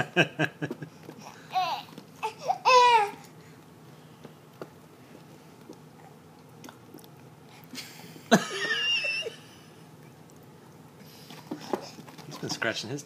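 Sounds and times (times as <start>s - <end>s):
baby vocal outburst: 1.2s - 3.3s.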